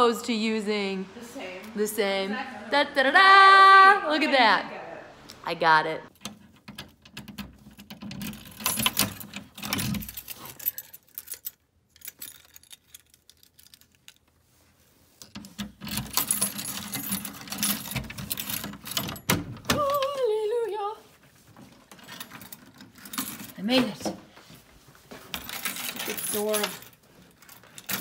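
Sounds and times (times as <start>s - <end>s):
key rattling in a door lock: 6.1s - 14.2s, 15.5s - 20.2s, 21.9s - 24.0s, 25.3s - 28.0s
keys jangling: 6.8s - 14.2s, 15.6s - 20.3s, 21.9s - 23.9s, 25.3s - 28.0s.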